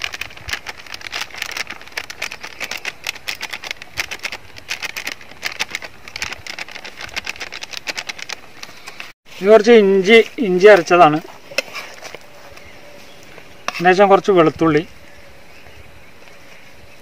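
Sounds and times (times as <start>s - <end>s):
foil packet crinkling: 0.0s - 9.1s.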